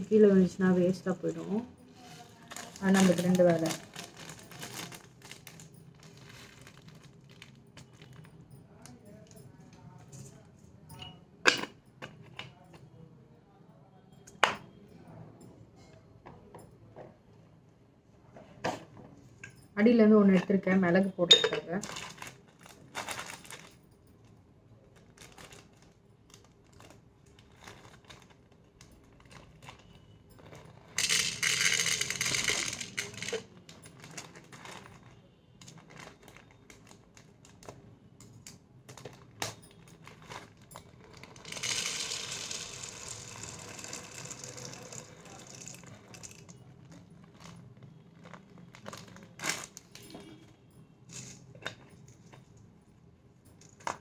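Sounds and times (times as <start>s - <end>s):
packet crinkling: 2.0s - 8.2s, 21.8s - 23.7s, 25.0s - 37.8s, 38.9s - 50.0s
peppercorns rattling into jar: 2.0s - 8.2s, 29.1s - 34.9s, 39.0s - 47.5s.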